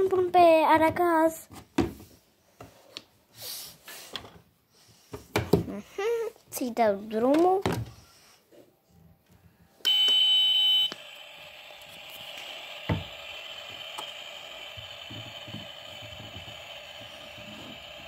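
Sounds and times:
hissing cooking sound effect: 11.0s - 18.0s.

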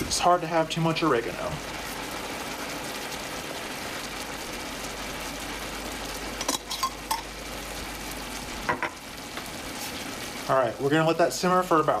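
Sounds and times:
broth simmering bubbling hiss: 0.0s - 12.0s.

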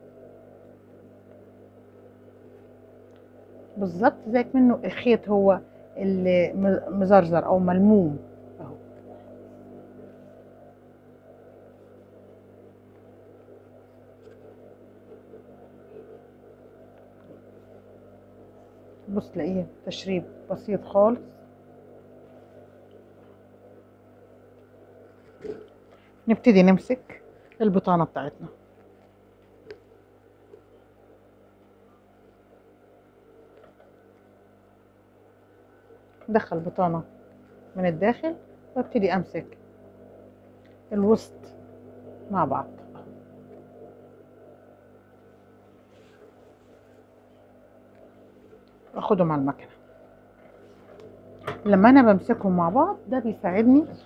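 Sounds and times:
steady low hum: 0.0s - 54.0s.

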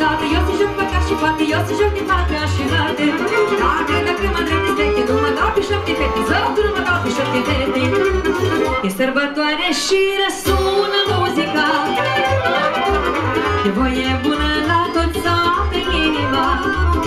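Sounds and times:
live band playing folk dance music: 0.0s - 17.0s.

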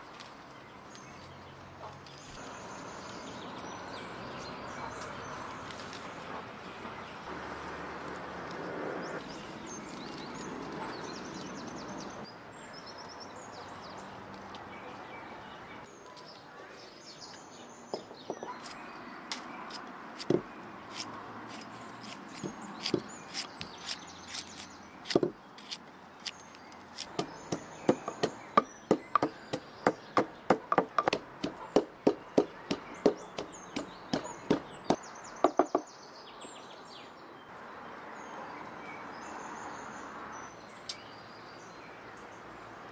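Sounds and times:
birds chirping: 0.0s - 42.9s
cleaver cutting on wood: 19.7s - 35.8s.

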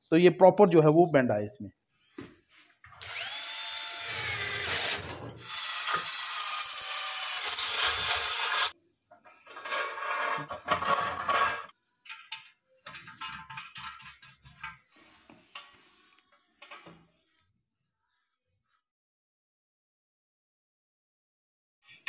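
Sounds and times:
cordless drill whining: 3.0s - 8.7s.

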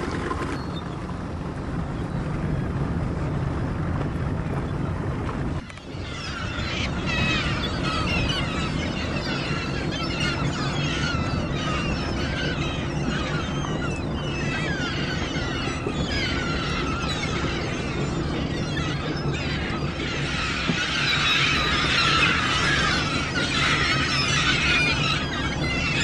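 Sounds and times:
boat engine humming: 0.0s - 26.0s
seagulls squawking: 5.6s - 26.0s.

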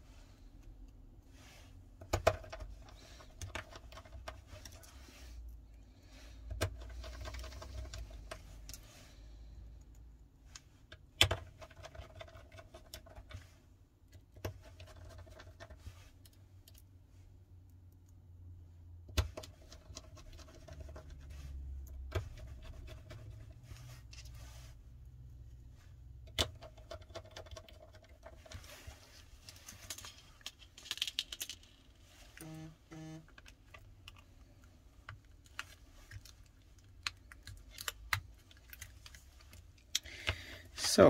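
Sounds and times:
small parts clicking and tapping: 29.5s - 32.5s.

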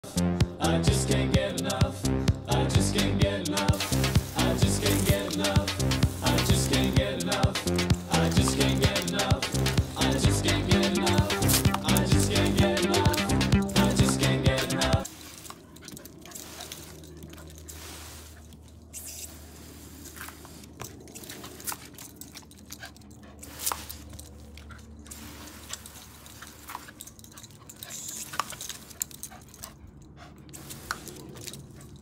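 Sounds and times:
water spray hissing: 3.6s - 15.6s, 16.3s - 20.7s, 25.1s - 26.9s, 30.5s - 31.4s.

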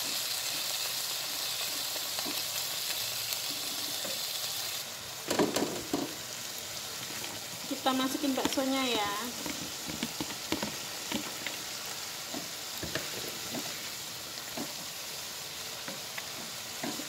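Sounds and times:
vegetables sizzling in hot oil: 0.0s - 17.0s
stirring clicks and taps: 9.3s - 11.6s, 15.8s - 17.0s.

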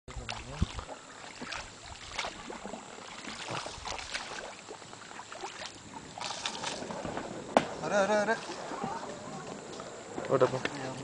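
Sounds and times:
paddles splashing in water: 0.1s - 11.0s
low thump: 6.9s - 7.8s.

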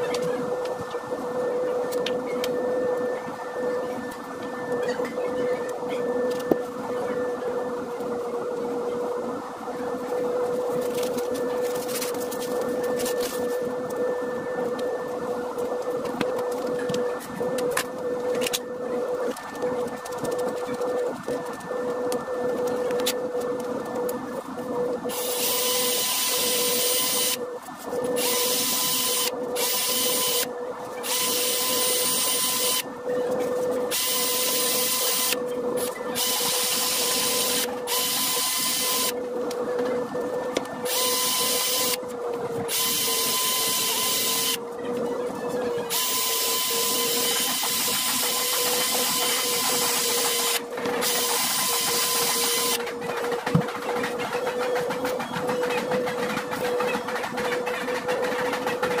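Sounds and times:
electric polishing tool humming: 25.1s - 39.2s, 40.5s - 42.0s, 42.6s - 44.6s, 45.7s - 52.8s.

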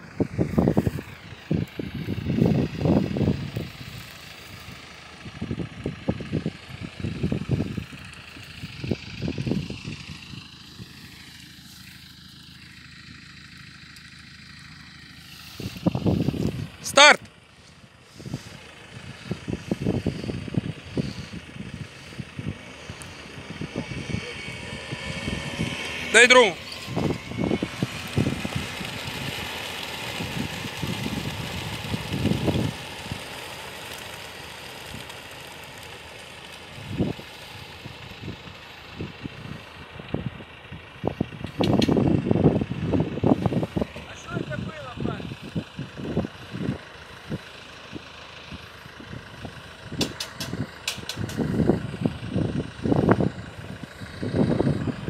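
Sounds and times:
steady low rumble: 0.0s - 55.0s
wind buffeting microphone: 0.1s - 10.9s, 15.6s - 16.8s, 18.1s - 25.9s, 26.8s - 33.3s, 37.9s - 46.8s, 49.0s - 55.0s
pigeon wings fluttering: 27.6s - 37.2s.

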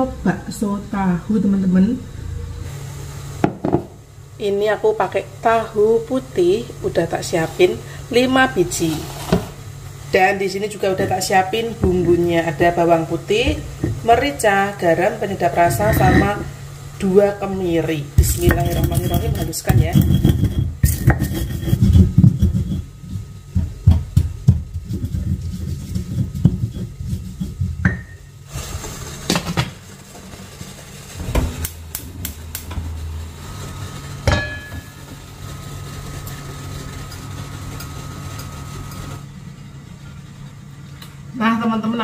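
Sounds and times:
low steady hum: 0.0s - 28.5s, 31.1s - 42.0s
stone pestle pounding in mortar: 23.5s - 28.1s.

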